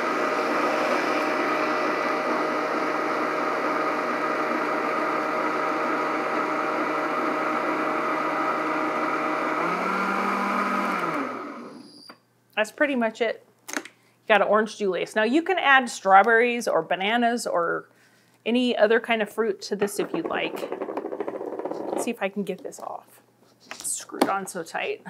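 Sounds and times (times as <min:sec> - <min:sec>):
blender motor blending ice: 0:00.0 - 0:12.1.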